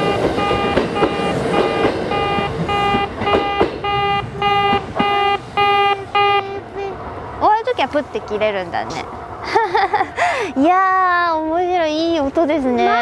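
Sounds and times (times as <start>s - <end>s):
level crossing warning beeps: 0.0s - 6.6s
train running noise: 0.0s - 13.0s.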